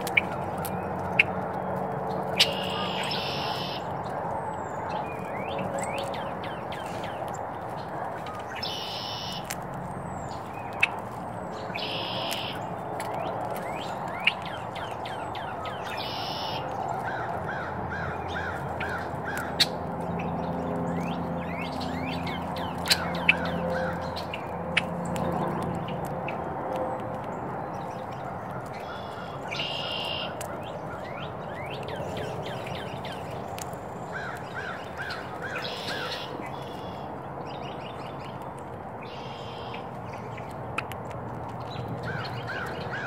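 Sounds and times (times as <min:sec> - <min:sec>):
birds chirping: 0:00.0 - 0:43.0
harsh squawking bird call: 0:02.3 - 0:04.0, 0:08.3 - 0:09.5, 0:15.1 - 0:19.8, 0:28.8 - 0:31.7, 0:34.1 - 0:37.0.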